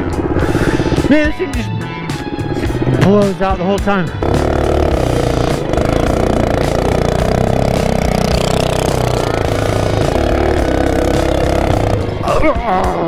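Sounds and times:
mini bike engine revving: 0:04.1 - 0:12.2.

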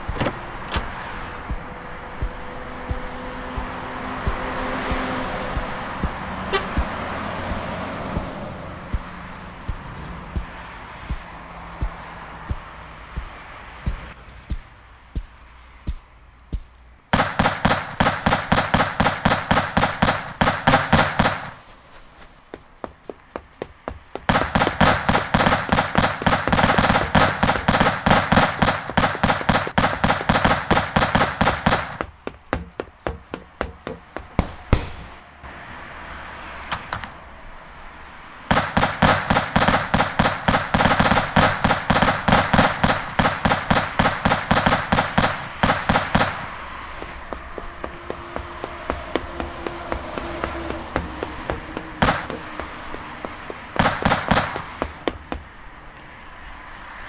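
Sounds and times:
automatic gunfire bursts: 0:17.2 - 0:21.6, 0:24.3 - 0:32.0, 0:38.5 - 0:46.5, 0:52.0 - 0:52.4, 0:53.8 - 0:54.7
single gunshots: 0:17.2 - 0:21.6, 0:24.3 - 0:32.0, 0:38.5 - 0:46.6, 0:52.0 - 0:52.4, 0:53.8 - 0:54.8.

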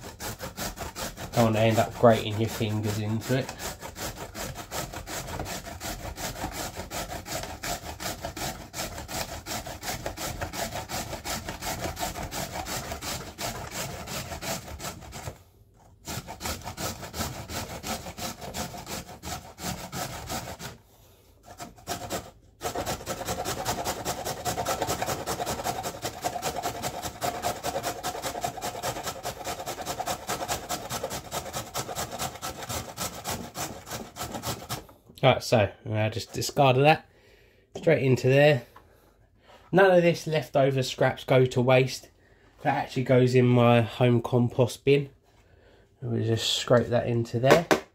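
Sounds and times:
carrot grated on metal grater: 0:00.0 - 0:20.8, 0:21.4 - 0:34.8.

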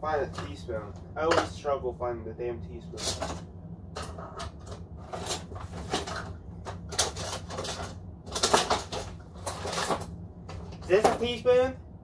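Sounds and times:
steady low hum: 0:00.0 - 0:12.0
utensils clattering in drawer: 0:03.0 - 0:03.4, 0:04.0 - 0:10.0.

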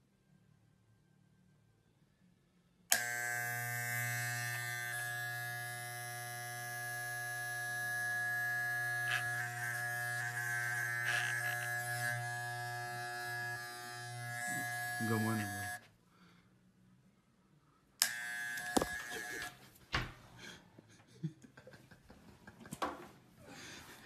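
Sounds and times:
electric hair trimmer buzzing: 0:02.9 - 0:15.8, 0:18.0 - 0:19.6.

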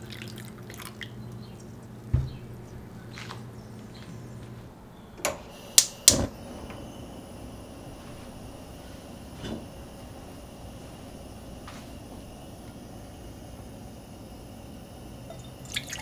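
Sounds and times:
gas flame hissing: 0:01.9 - 0:16.0
gas stove igniter clicks: 0:05.2 - 0:07.0.

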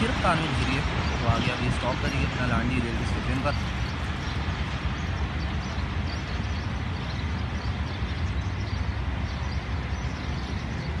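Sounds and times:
diesel locomotive rumbling: 0:00.0 - 0:11.0.

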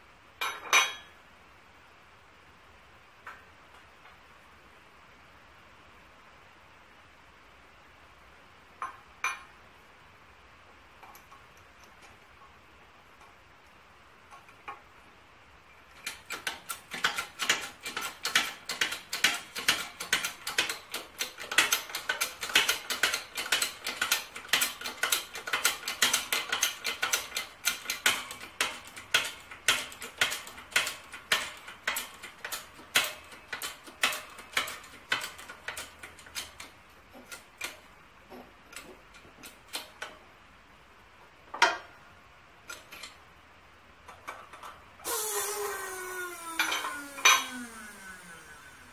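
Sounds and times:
hydraulic press pump clicking: 0:16.0 - 0:37.8, 0:45.0 - 0:48.9.

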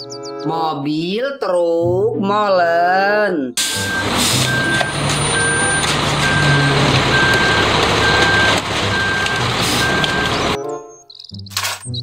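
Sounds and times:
truck engine running: 0:03.6 - 0:10.6
reversing alarm beeping: 0:03.6 - 0:11.4.

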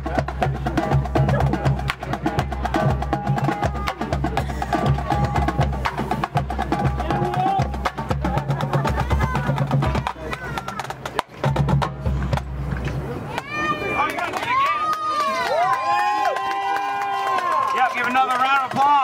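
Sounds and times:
marching band playing: 0:00.0 - 0:14.6.

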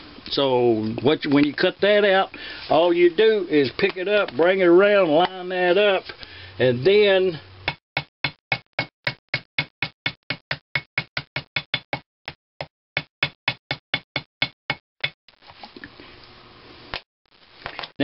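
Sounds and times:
hammer tapping gasket material: 0:07.7 - 0:12.0, 0:12.6 - 0:15.2.

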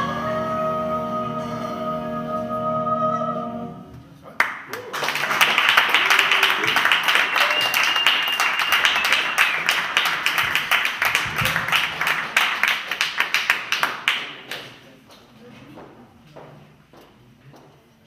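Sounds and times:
audience applauding: 0:04.4 - 0:14.8
thin high whistle: 0:07.4 - 0:09.6.

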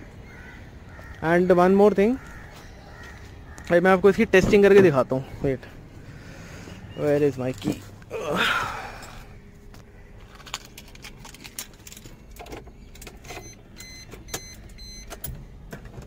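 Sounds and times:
car keys jangling: 0:10.3 - 0:15.3.

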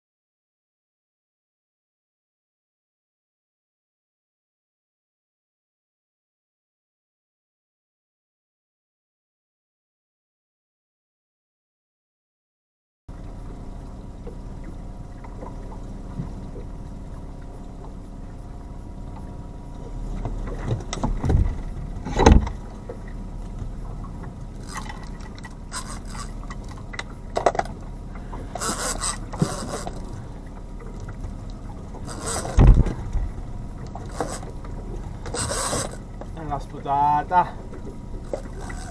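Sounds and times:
outboard engine running: 0:13.1 - 0:38.9
fishing reel drag rasping: 0:24.4 - 0:27.1, 0:28.0 - 0:36.3, 0:37.5 - 0:38.9.

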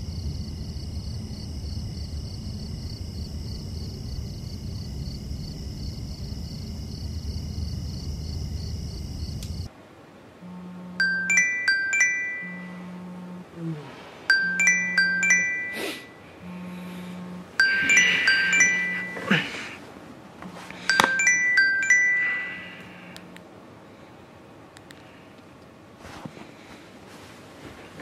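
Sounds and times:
phone vibration buzzing: 0:10.4 - 0:15.8, 0:16.4 - 0:19.6
phone ringtone chime: 0:11.0 - 0:12.9, 0:14.3 - 0:16.2, 0:17.6 - 0:19.5, 0:20.8 - 0:23.2.

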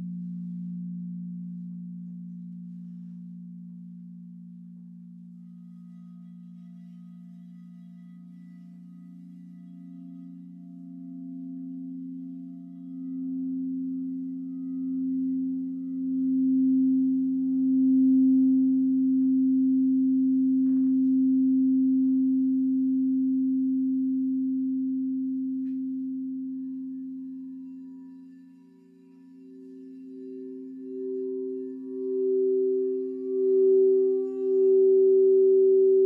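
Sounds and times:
singing bowls ringing: 0:00.0 - 0:36.0.

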